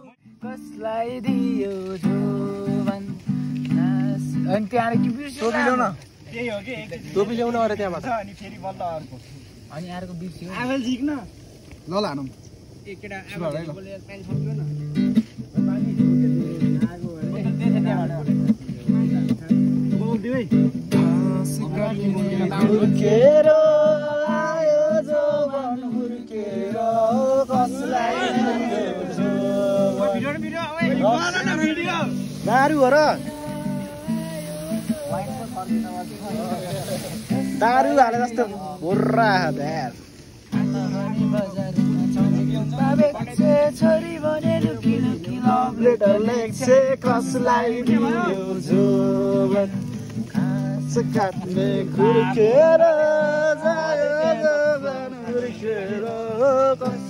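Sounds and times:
man singing: 0:00.0 - 0:05.6, 0:20.8 - 0:57.0
acoustic guitar: 0:00.0 - 0:11.8, 0:12.5 - 0:57.0.

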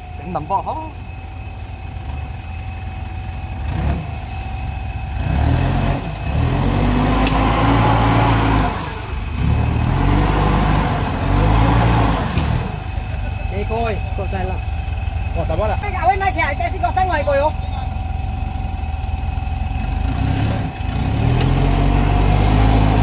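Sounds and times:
pickup engine revving hard: 0:05.1 - 0:13.0, 0:19.8 - 0:23.0.

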